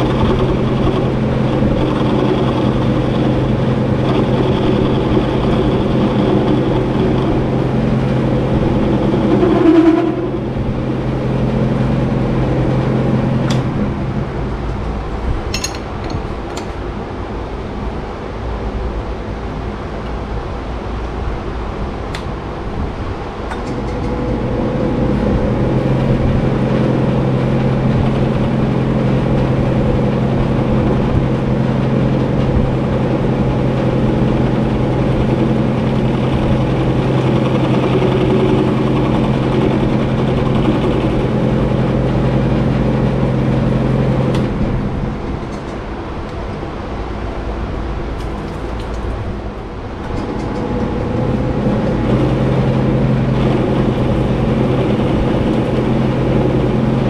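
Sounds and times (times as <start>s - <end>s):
metal lathe humming: 0.0s - 14.2s, 23.5s - 45.2s, 50.1s - 57.0s.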